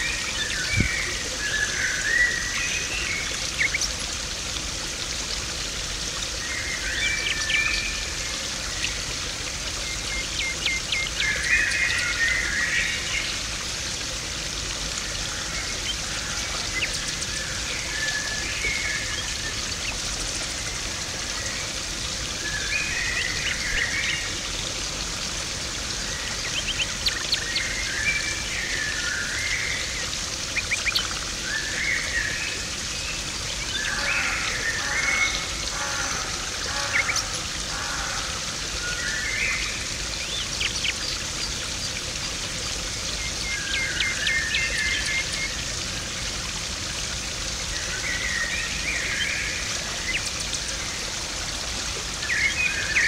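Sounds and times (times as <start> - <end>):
small birds chirping: 0.0 - 4.1
water splashing into pond: 0.0 - 53.0.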